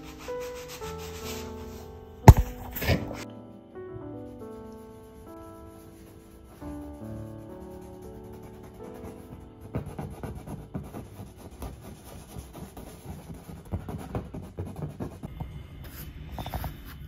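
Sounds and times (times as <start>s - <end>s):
hand rubbing on canvas: 0.0s - 3.2s
soft taps on canvas: 2.3s - 3.0s.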